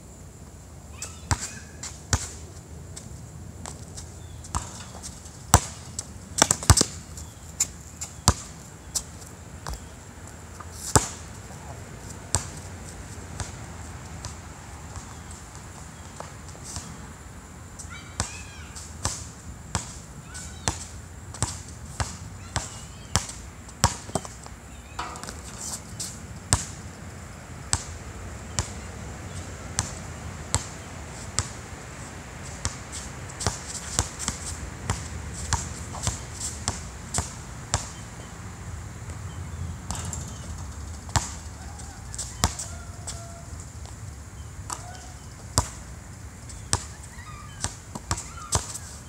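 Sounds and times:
basketball bouncing on asphalt: 3.6s - 5.8s, 6.4s - 9.0s, 9.6s - 9.9s, 10.9s - 11.2s, 18.2s - 26.8s, 27.7s - 30.8s, 32.6s - 38.0s, 39.1s - 44.0s, 44.7s - 45.8s, 46.5s - 48.8s.

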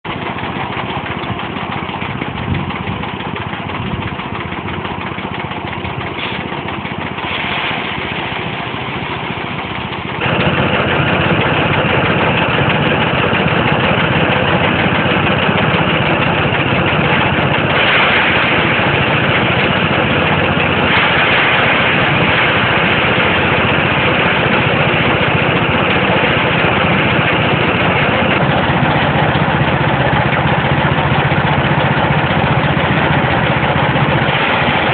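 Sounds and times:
small engine running: 0.1s - 34.9s
threshing drum spinning: 0.1s - 34.9s.

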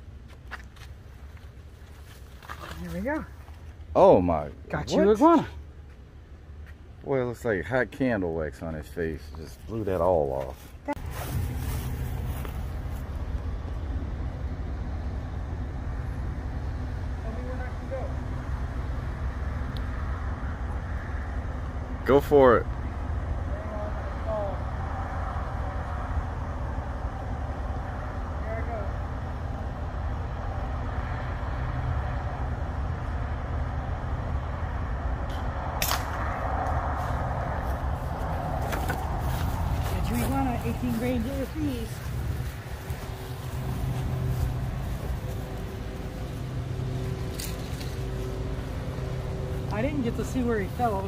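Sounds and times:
motor vehicle rumbling: 0.0s - 51.0s
air rifle shot: 35.8s - 36.3s.

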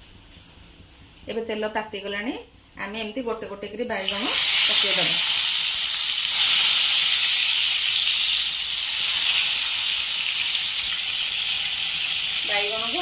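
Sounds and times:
eggplant sizzling in hot oil: 3.9s - 13.0s.

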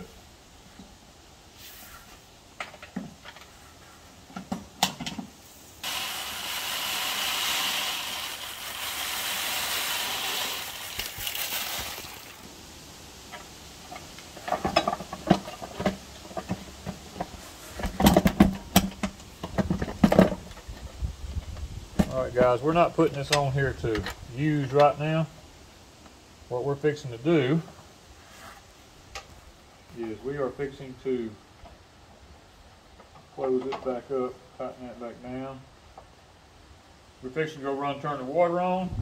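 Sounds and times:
granules pouring into bag: 7.0s - 12.4s.

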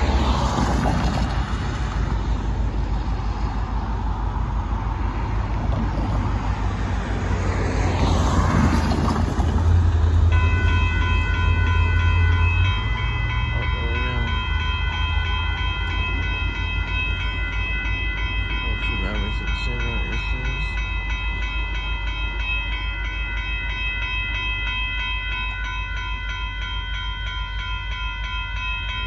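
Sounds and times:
railroad crossing bell ringing: 0.0s - 0.6s, 9.6s - 29.0s
car passing on wet road: 0.0s - 10.4s
diesel locomotive rumble: 0.0s - 29.0s.

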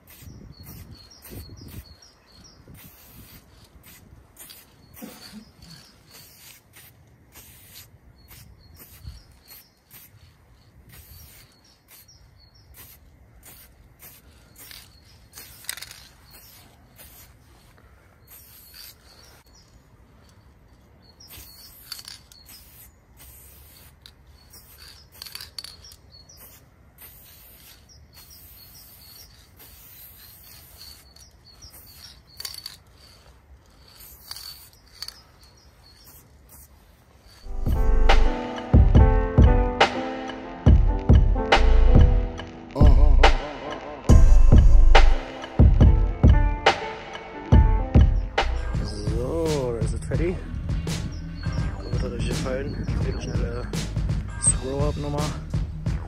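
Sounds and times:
spray-paint can hissing: 0.0s - 19.7s, 21.2s - 38.8s
birds chirping: 0.0s - 56.0s.

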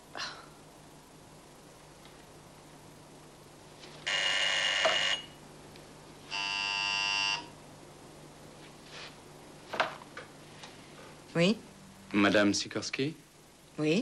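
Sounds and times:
telephone ringing: 4.0s - 5.4s, 6.3s - 7.5s.

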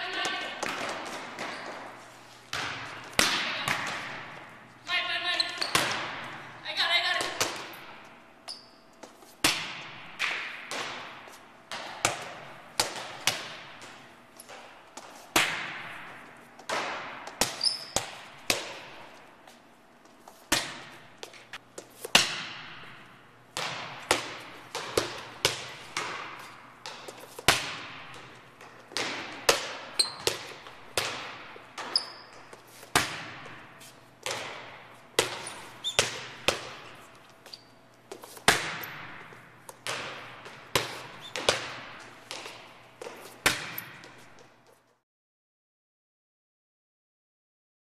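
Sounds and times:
balls bouncing on court floor: 0.0s - 44.7s
hand smacking volleyball: 9.0s - 19.1s.

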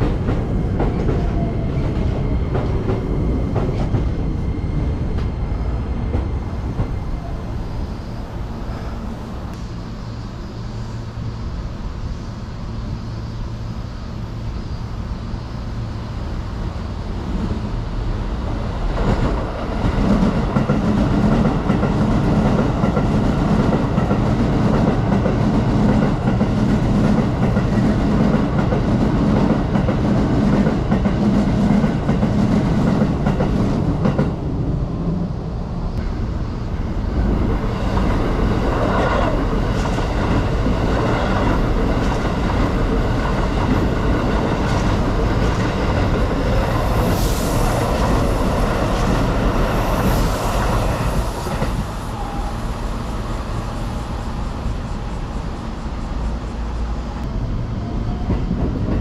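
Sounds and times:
train wheels clattering on rails: 0.0s - 7.2s, 18.7s - 34.5s, 36.0s - 52.7s
train motor whine: 48.9s - 58.5s.

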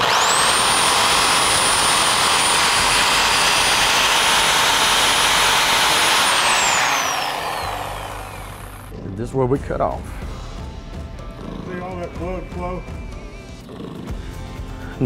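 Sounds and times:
reciprocating saw motor whine: 0.0s - 8.9s
saw blade cutting antler: 0.0s - 8.9s.

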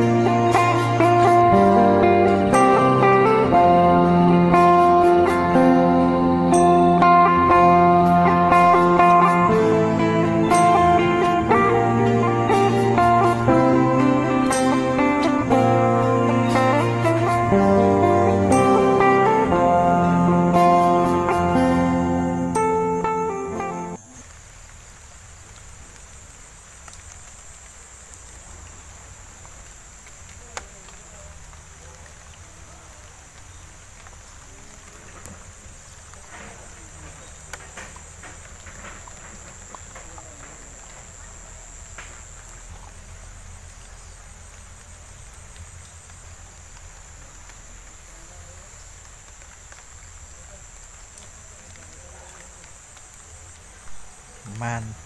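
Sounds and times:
insects droning: 0.0s - 55.0s
faint ticks: 24.0s - 55.0s.

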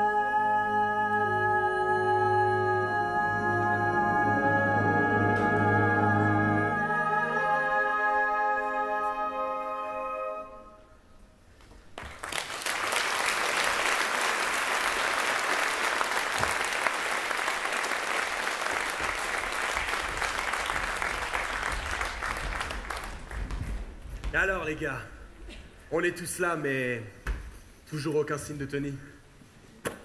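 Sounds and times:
audience applauding: 12.0s - 24.0s.

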